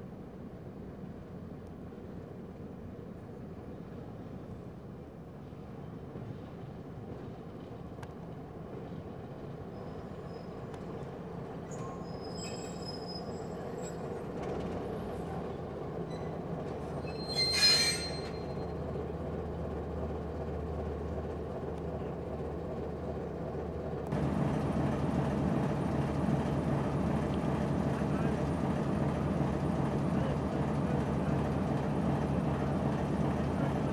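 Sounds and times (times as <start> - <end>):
diesel locomotive engine droning: 0.0 - 33.9
high-pitched wheel squeals: 11.7 - 14.1, 17.0 - 18.7.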